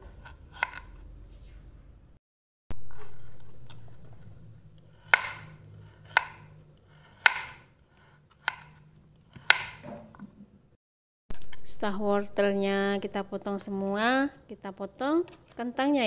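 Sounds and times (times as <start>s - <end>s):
knife chopping on cutting board: 0.0s - 0.9s, 5.0s - 10.2s.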